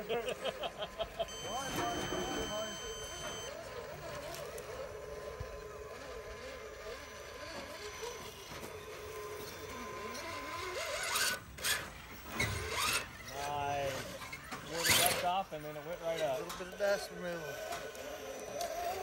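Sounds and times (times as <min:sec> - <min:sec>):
electric motor whining: 0:01.2 - 0:19.0.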